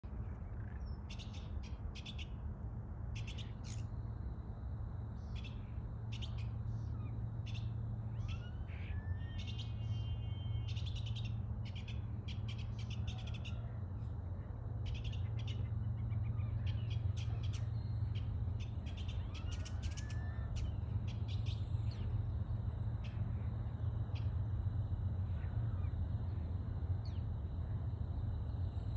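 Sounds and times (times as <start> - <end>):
steady low rumble: 0.0 - 28.9
starlings calling: 5.2 - 13.7, 14.8 - 24.4.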